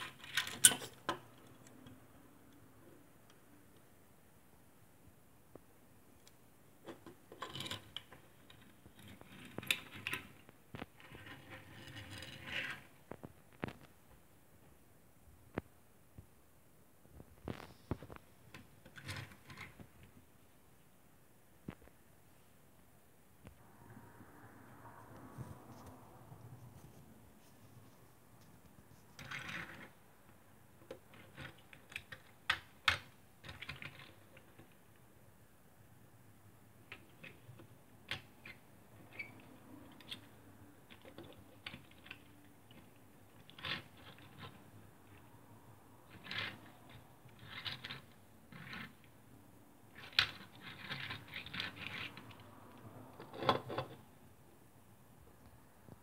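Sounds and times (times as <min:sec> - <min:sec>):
metal toy cars on wooden table: 0:00.0 - 0:14.8, 0:17.1 - 0:20.9, 0:23.5 - 0:56.0
toy car scraping on wooden table: 0:11.0 - 0:13.0, 0:29.2 - 0:30.0, 0:50.0 - 0:52.5.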